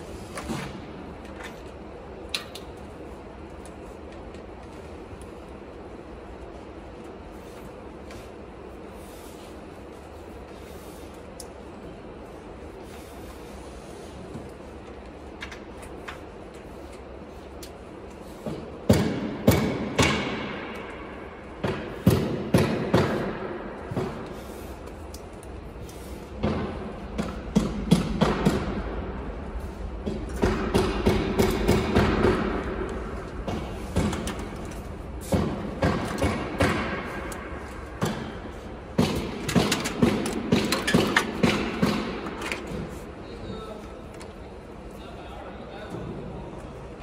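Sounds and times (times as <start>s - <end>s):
cables and hoses knocking on metal: 18.4s - 24.4s, 26.4s - 43.0s.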